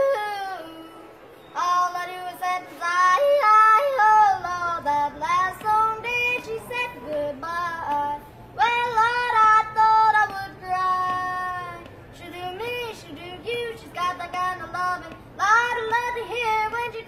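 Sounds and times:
boy yodeling: 0.0s - 11.8s.

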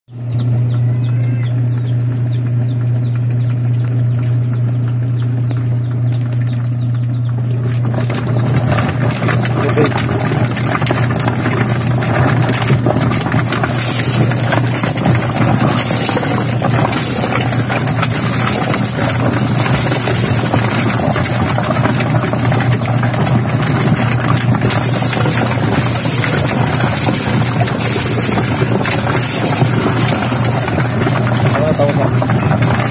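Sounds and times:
washing machine motor hum: 0.1s - 32.9s
water splashing into drum: 7.4s - 32.9s.

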